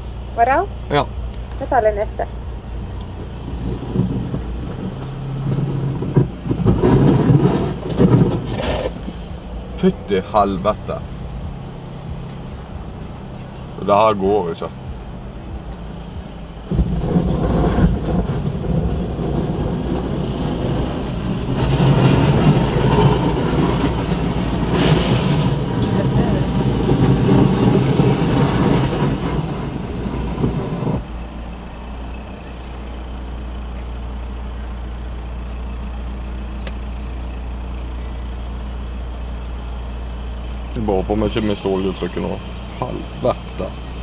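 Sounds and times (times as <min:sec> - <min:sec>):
steady low hum: 0:00.0 - 0:44.0
car interior rushing noise: 0:00.9 - 0:33.6.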